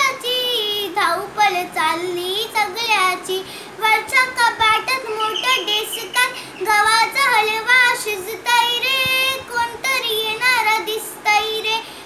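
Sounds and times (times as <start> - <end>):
girl singing solo: 0.0 - 12.0.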